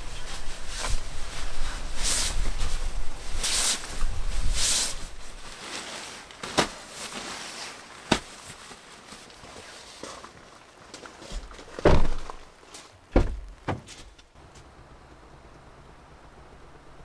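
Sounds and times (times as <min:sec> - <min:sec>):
sleeping bag rustling: 0:00.0 - 0:14.3
sharp knocks: 0:13.2 - 0:13.9.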